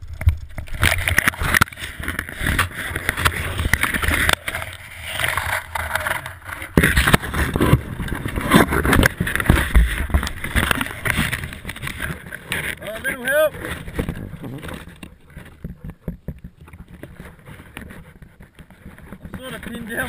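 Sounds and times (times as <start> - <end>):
branches scraping and crackling: 0.0 - 20.0.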